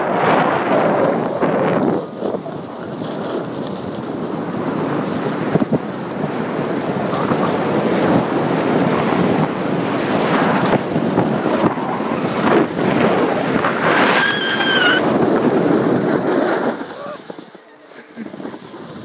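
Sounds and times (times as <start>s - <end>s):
snowboard scraping over snow: 0.0s - 19.0s
wind on microphone: 0.0s - 19.0s
high-pitched squeal: 13.8s - 15.1s.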